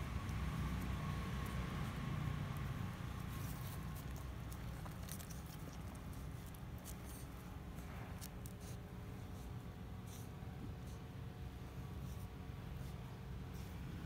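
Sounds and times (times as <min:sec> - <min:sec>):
low steady rumble: 0:00.0 - 0:14.0.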